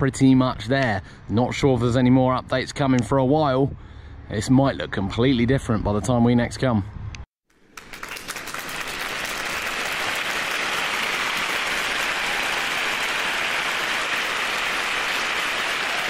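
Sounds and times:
crowd applause: 7.6 - 16.0.

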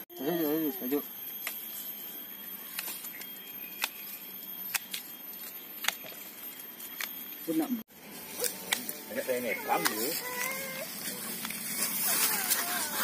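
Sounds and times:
pruning shears snipping roots: 8.4 - 9.0.

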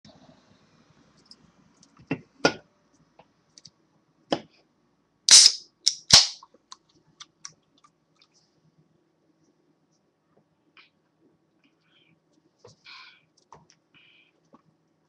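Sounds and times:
can tab crack: 5.3 - 6.4
soda can opening hiss: 5.3 - 6.4.

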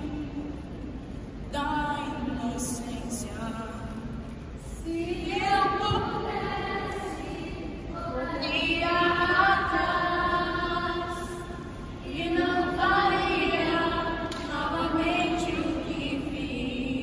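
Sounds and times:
group singing worship song: 4.8 - 17.0.

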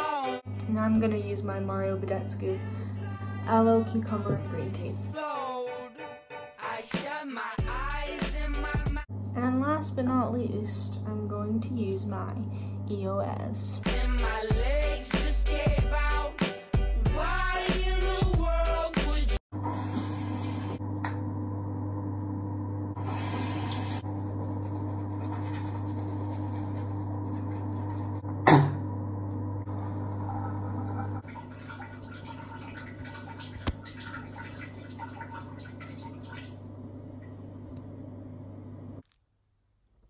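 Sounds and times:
water running in sink: 19.6 - 21.2, 23.0 - 28.7, 29.5 - 37.5
teeth being brushed: 24.6 - 28.0.

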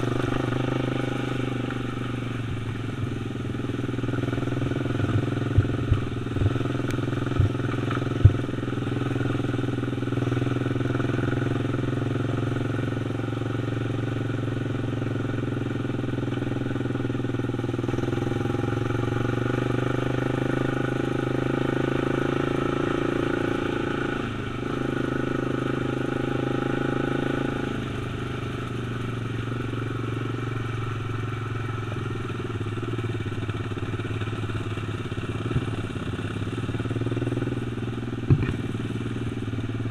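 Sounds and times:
quad engine running: 0.0 - 39.9
sharp knocks: 38.3 - 38.6.

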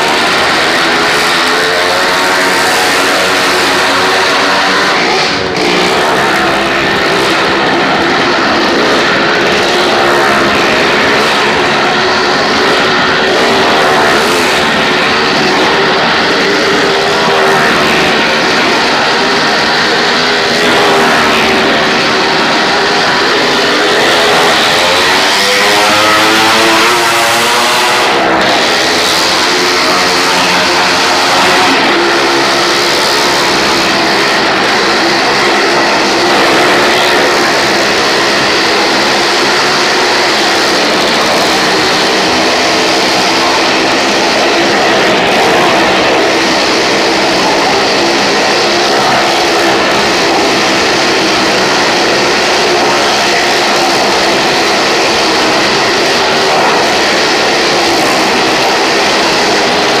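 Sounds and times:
car and motorbike engines circling: 0.0 - 60.0.

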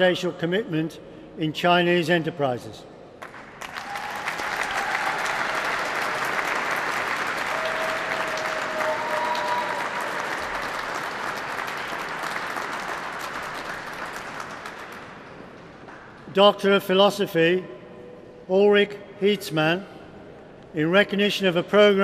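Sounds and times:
audience applauding: 3.2 - 15.3.

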